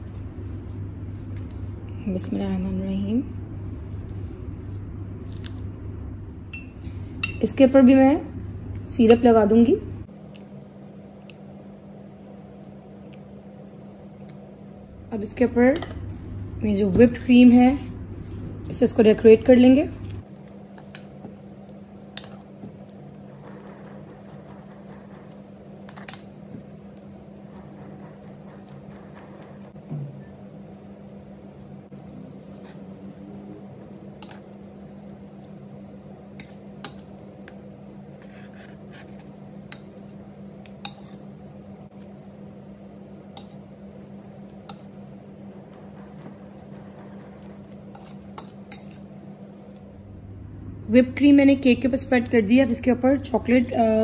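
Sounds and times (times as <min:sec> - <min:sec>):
steady low hum: 0:00.0 - 0:54.0
spatula spreading cream: 0:20.3 - 0:29.8, 0:36.4 - 0:42.6, 0:43.4 - 0:49.2.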